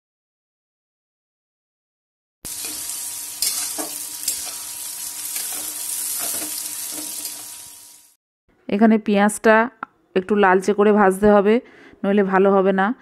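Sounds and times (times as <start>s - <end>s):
metal spatula scraping pan: 2.5s - 7.5s
onions sizzling in oil: 2.5s - 8.2s.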